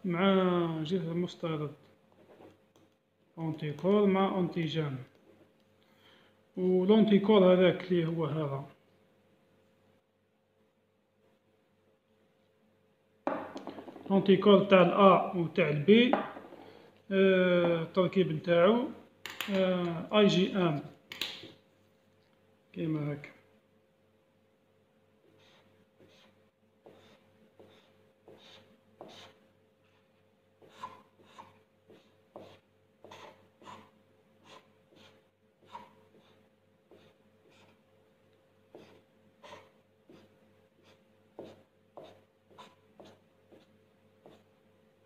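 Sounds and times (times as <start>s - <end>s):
faint steady hum: 0.0s - 45.0s
marker scratching on paper: 25.2s - 29.4s, 30.6s - 37.8s, 38.7s - 44.5s.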